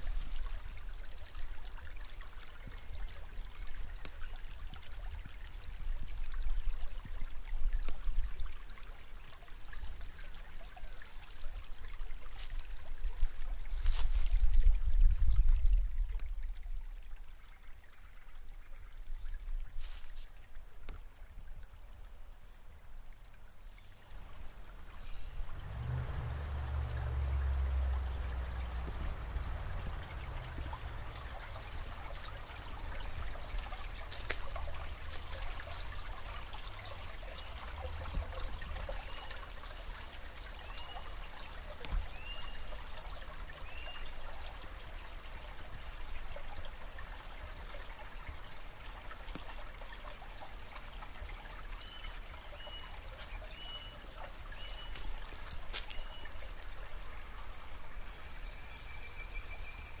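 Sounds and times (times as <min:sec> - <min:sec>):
creek water trickling over rocks: 0:00.0 - 1:00.0
birds chirping: 0:51.8 - 0:55.1, 0:55.8 - 0:56.4.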